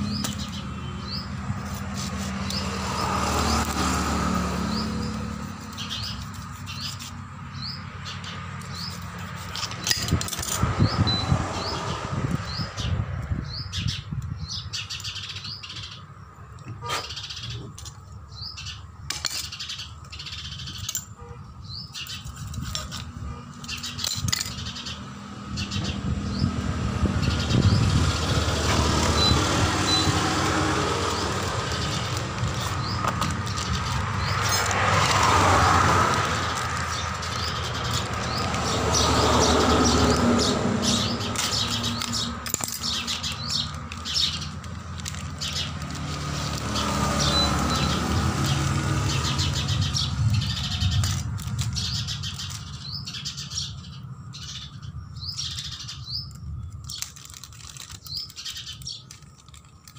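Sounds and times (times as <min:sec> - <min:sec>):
hand tools clinking on metal: 0:08.6 - 0:10.7, 0:19.1 - 0:19.6, 0:22.2 - 0:24.7, 0:31.0 - 0:35.1, 0:41.4 - 0:45.3.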